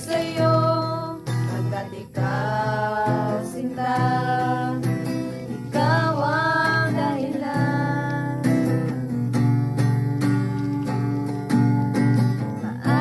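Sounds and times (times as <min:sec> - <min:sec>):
women singing together: 0:00.0 - 0:09.1, 0:12.6 - 0:13.0
strummed acoustic guitar: 0:00.0 - 0:13.0.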